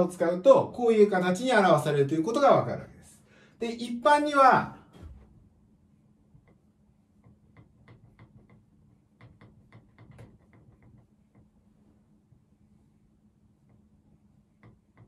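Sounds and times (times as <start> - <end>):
faint low hum: 0.0 - 15.0
pen tapping on writing surface: 7.2 - 8.6, 9.2 - 11.5.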